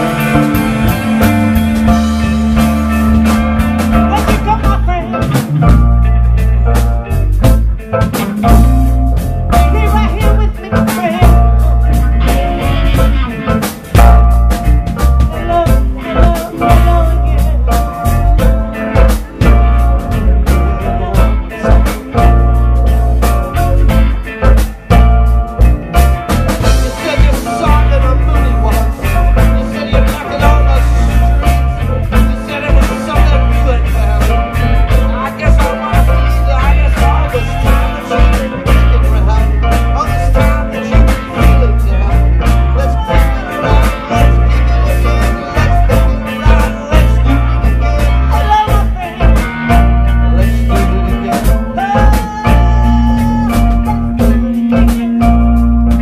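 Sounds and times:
drums keeping steady beat: 0.0 - 56.0
electric guitar: 0.0 - 56.0
heavy bass: 0.0 - 56.0
keyboards: 0.0 - 56.0
live band playing: 0.0 - 56.0.

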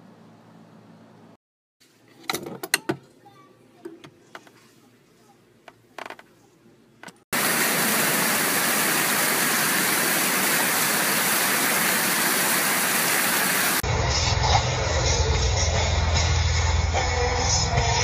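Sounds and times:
loud steady rushing noise: 7.4 - 16.9
music with strong bass: 13.8 - 18.0.

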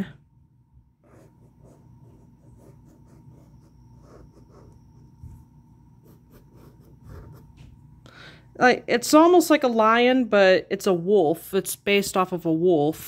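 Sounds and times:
pen scratching on paper: 1.0 - 5.4, 6.0 - 7.6.

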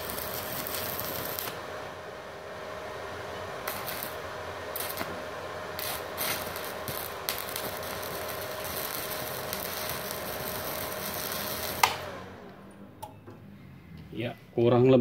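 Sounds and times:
welding arc crackling: 0.0 - 2.0, 3.4 - 12.6
welder switch click: 11.7 - 13.2.

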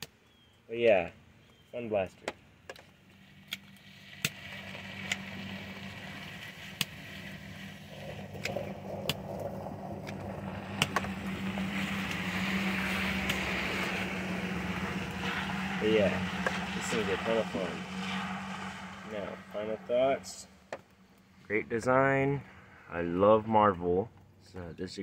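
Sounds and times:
small sharp clicks: 2.2 - 5.3, 6.6 - 7.1, 13.2 - 13.5
vehicle driving past: 3.0 - 24.2.

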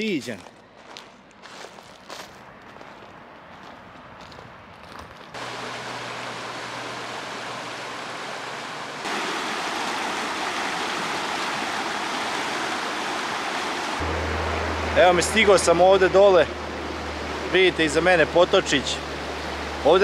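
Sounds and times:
creek rushing over rocks: 5.4 - 14.1, 14.9 - 20.0.

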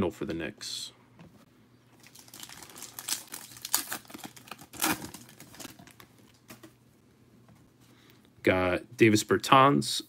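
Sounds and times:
foil pack crinkling: 2.0 - 6.7.

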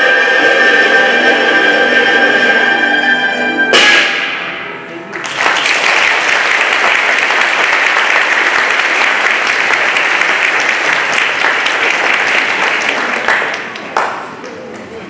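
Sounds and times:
audience applauding: 5.1 - 14.4.

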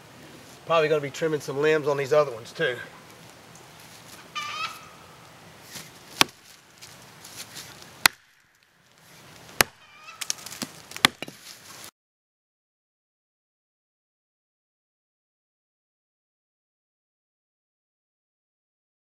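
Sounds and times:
axe chopping tree trunk: 5.7 - 6.6, 7.4 - 8.7, 9.4 - 11.6.

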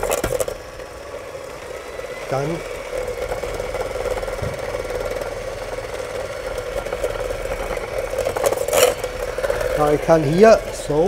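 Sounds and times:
electric hand mixer running: 0.0 - 11.0.

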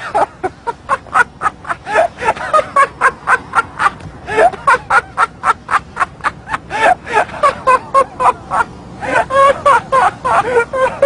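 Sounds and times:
man laughing hard: 0.0 - 11.0.

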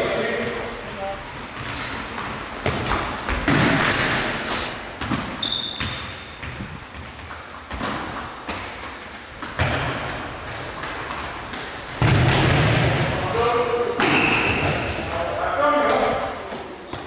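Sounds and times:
sports shoes squeaking on wooden floor: 1.5 - 11.0
ball kicked and bouncing with echo: 1.6 - 4.1, 5.0 - 8.6, 9.4 - 13.2.

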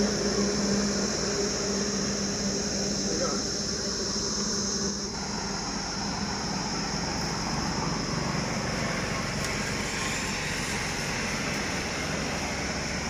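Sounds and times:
highway traffic rushing: 0.0 - 13.0
car passing by: 5.2 - 13.0.

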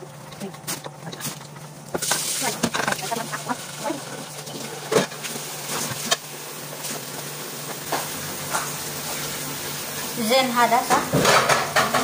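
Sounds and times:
utensils and cookware knocking: 10.9 - 12.0.

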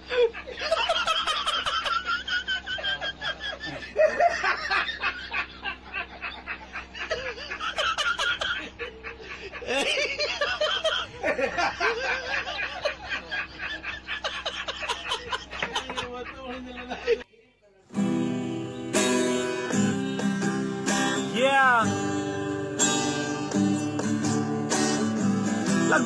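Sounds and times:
person snickering laughter: 0.0 - 17.2.

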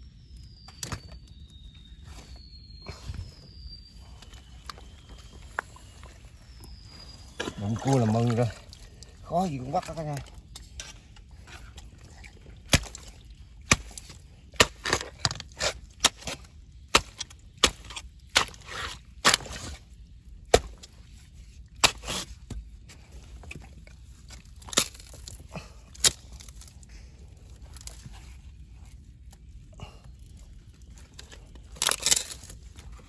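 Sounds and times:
scraping squelches in mud: 2.9 - 33.0.

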